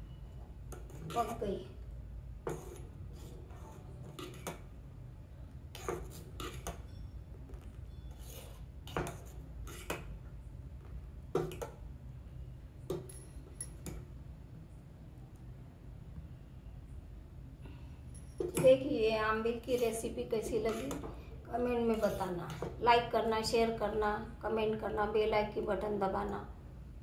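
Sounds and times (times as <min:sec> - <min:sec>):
spoon scraping saucepan: 0:00.8 - 0:01.5, 0:02.5 - 0:04.6, 0:05.7 - 0:06.9, 0:07.5 - 0:10.1, 0:18.4 - 0:21.2, 0:21.8 - 0:22.8.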